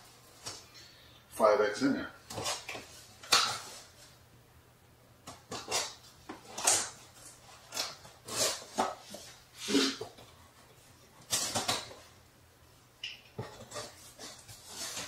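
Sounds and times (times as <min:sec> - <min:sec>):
box cutter slicing packing tape: 0:05.5 - 0:07.0, 0:07.6 - 0:09.0.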